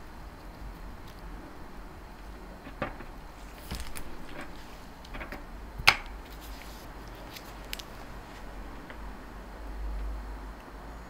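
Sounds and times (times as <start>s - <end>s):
soft rustling: 2.2s - 5.4s, 6.2s - 9.2s.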